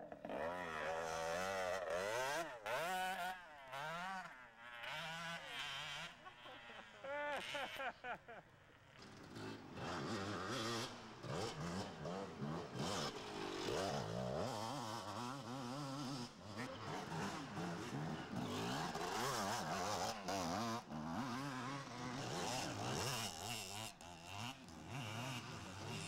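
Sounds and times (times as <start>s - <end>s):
dirt bikes revving past: 0.0s - 26.0s.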